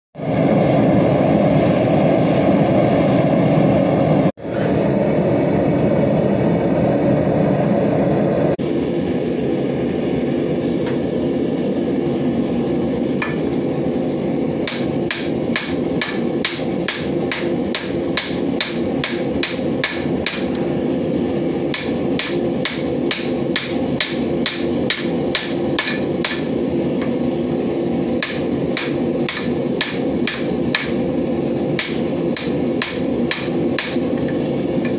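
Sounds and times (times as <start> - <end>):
gas forge burner roaring: 0.2 - 34.9
hammer striking metal on anvil: 14.6 - 20.6, 21.7 - 27.2, 28.2 - 31.0, 31.8 - 34.0.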